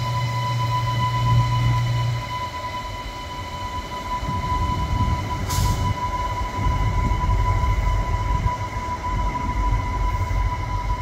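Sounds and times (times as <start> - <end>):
high-pitched whine: 0.0 - 11.0
railcar low rumble: 0.0 - 11.0
burst of hiss: 5.5 - 5.9.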